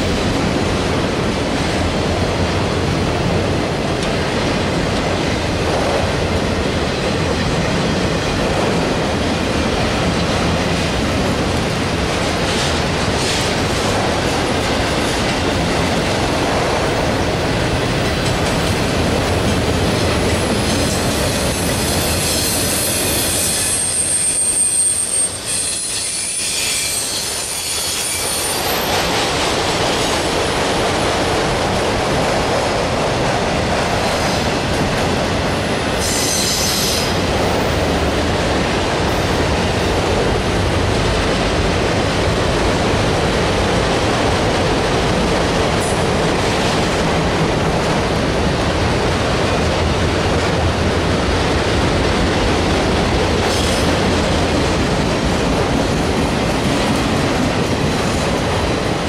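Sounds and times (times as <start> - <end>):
train wheels rumbling on rail: 0.0 - 59.0
high-pitched wheel squeal: 21.5 - 28.9.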